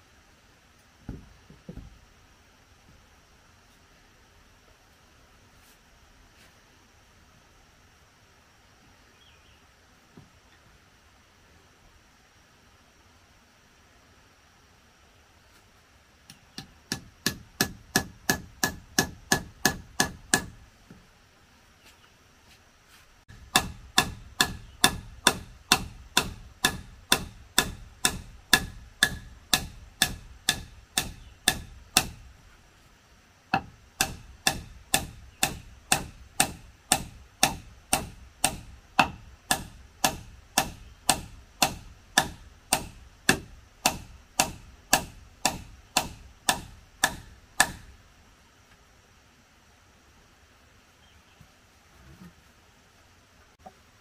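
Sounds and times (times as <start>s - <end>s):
hand tool striking wood: 1.1s - 2.0s, 16.3s - 21.0s, 23.3s - 32.3s, 33.5s - 47.9s.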